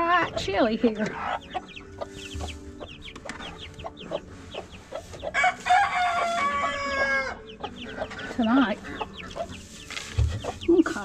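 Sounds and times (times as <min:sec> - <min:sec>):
chicks peeping: 0:00.0 - 0:11.0
rooster crowing: 0:05.3 - 0:07.5.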